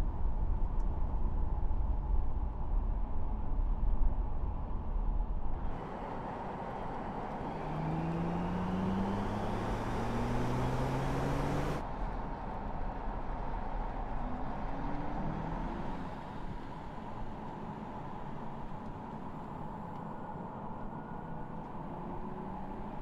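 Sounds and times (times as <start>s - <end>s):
tyre and road noise: 5.6s - 11.8s.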